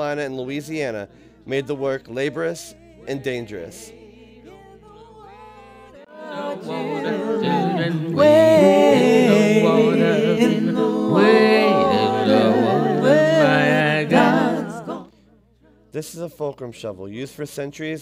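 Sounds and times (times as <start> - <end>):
voices singing a cappella: 0.0 - 16.0.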